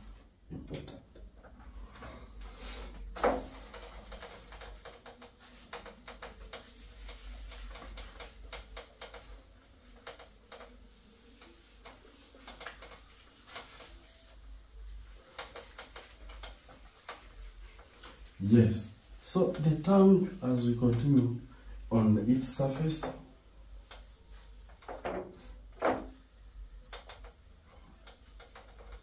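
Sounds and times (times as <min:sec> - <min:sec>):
eraser scrubbing whiteboard: 0:02.8 - 0:20.4.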